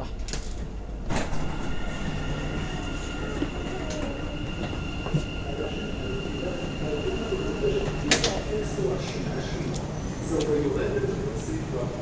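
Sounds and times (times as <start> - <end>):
train low rumble: 0.0 - 12.0
train high whine: 0.8 - 12.0.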